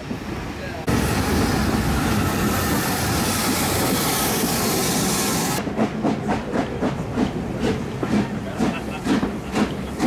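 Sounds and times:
wheels rumbling on rail: 0:00.0 - 0:10.0
steam hiss: 0:00.8 - 0:05.6.

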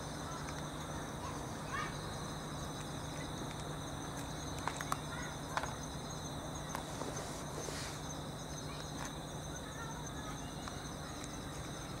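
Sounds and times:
insects chirring: 0:00.0 - 0:12.0.

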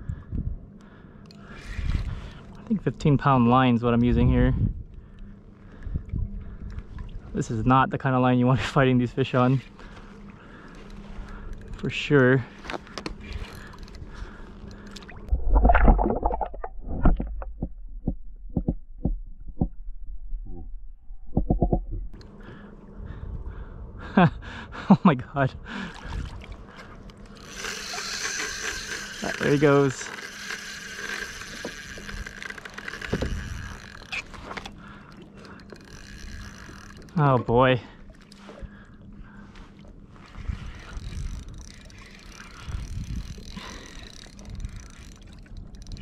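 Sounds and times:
fishing reel drag ticking: 0:00.8 - 0:05.9, 0:07.7 - 0:15.3, 0:26.8 - 0:38.7, 0:39.3 - 0:46.0
underwater rumble of water: 0:01.4 - 0:24.7, 0:28.8 - 0:46.0
short underwater clicks and knocks: 0:14.6 - 0:19.8, 0:21.3 - 0:22.3, 0:26.1 - 0:38.6.

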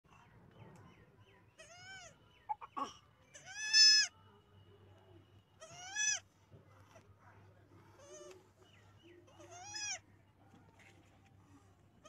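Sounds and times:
baby goat bleating: 0:01.6 - 0:02.1, 0:03.3 - 0:04.1, 0:05.6 - 0:06.2, 0:09.4 - 0:10.0.

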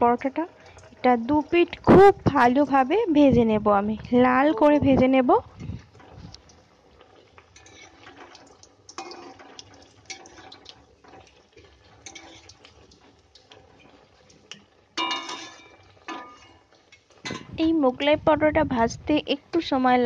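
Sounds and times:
flatbread sizzling in hot oil: 0:00.0 - 0:20.0
spatula striking a pan: 0:14.6 - 0:16.6.

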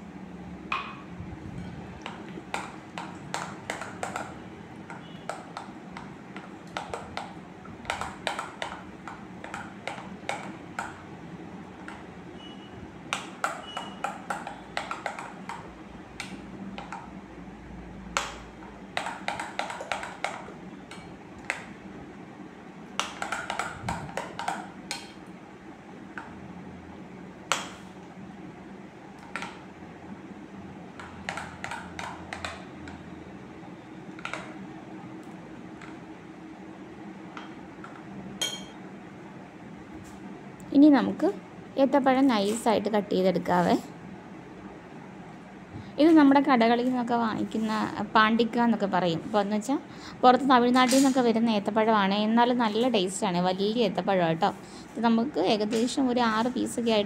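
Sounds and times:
spoon clinking against glass bowl: 0:38.4 - 0:38.8.

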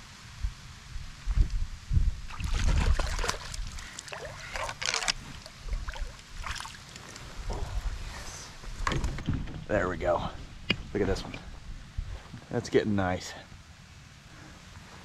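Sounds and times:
fish splashing at water surface: 0:02.3 - 0:07.2.

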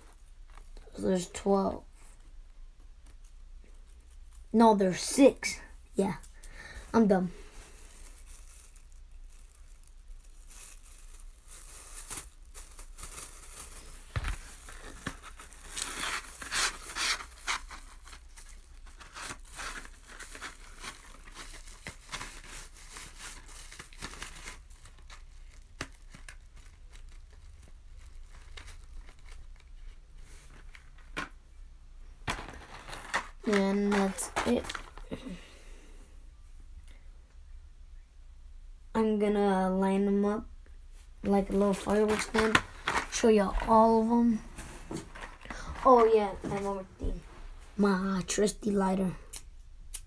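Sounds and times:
plastic and cardboard crinkling: 0:07.0 - 0:31.4, 0:32.2 - 0:35.4, 0:41.2 - 0:47.6.

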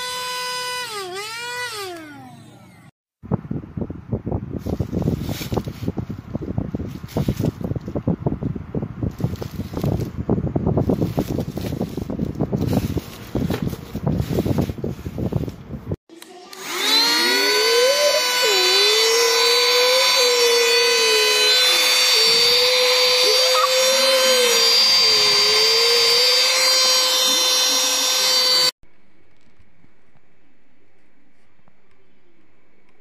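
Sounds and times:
handheld vacuum cleaner whining: 0:00.0 - 0:02.9, 0:16.1 - 0:28.8.

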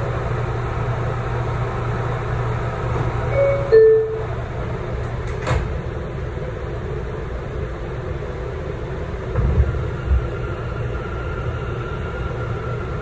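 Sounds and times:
subway car low hum: 0:00.0 - 0:13.0
two-note falling door chime: 0:03.4 - 0:04.3.

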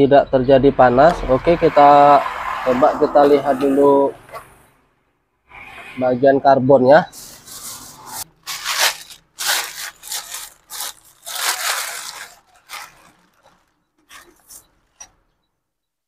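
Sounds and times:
plastic bag rustling: 0:07.1 - 0:15.2.

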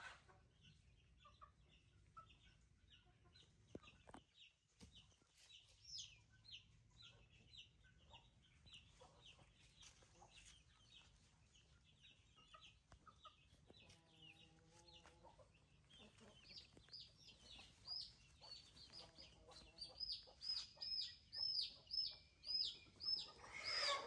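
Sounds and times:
chickens peeping: 0:00.0 - 0:24.0
lower longer chicken call: 0:23.4 - 0:24.0.

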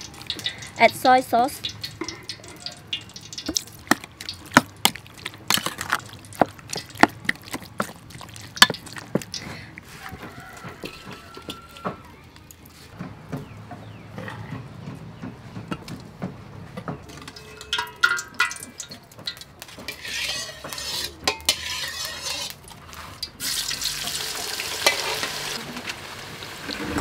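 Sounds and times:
wet squelching of meat: 0:01.6 - 0:10.4.

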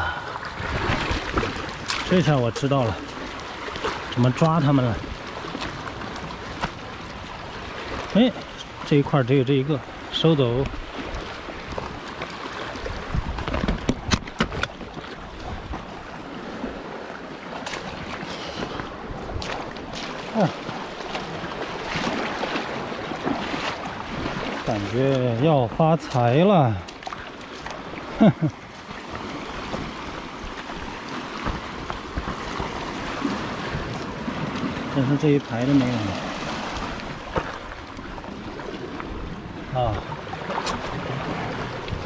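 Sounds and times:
seawater washing among rocks: 0:00.0 - 0:42.0
wind buffeting microphone: 0:10.6 - 0:17.0
wind rumbling on microphone: 0:10.6 - 0:25.0, 0:35.8 - 0:42.0.

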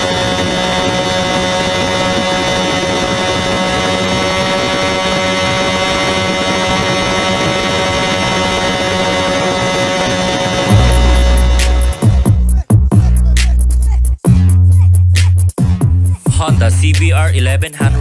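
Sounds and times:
wind rushing over microphone: 0:00.0 - 0:12.4
motorcycle engine high-revving: 0:00.0 - 0:13.2.

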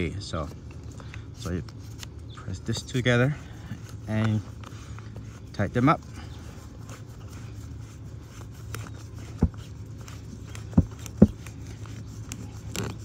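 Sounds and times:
steady low hum: 0:00.0 - 0:13.0
plastic nuts scraping and ticking: 0:08.7 - 0:13.0.

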